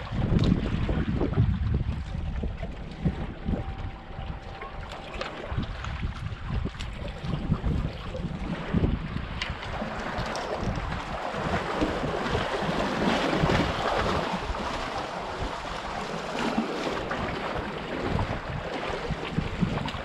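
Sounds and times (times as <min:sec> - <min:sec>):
wind buffeting microphone: 0:00.0 - 0:20.0
waves splashing on rocks: 0:08.4 - 0:20.0.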